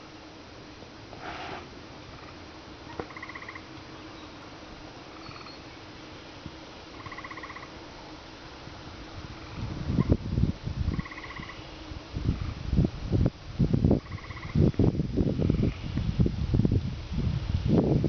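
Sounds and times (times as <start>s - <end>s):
frog calling with pulsed trills: 2.9s - 3.7s, 7.0s - 7.7s, 10.9s - 11.6s, 14.0s - 14.6s.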